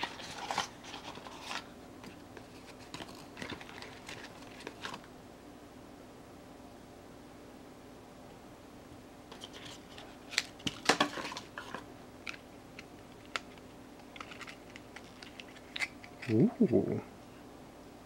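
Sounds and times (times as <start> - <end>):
plastic wrap crinkling: 2.5 - 5.0.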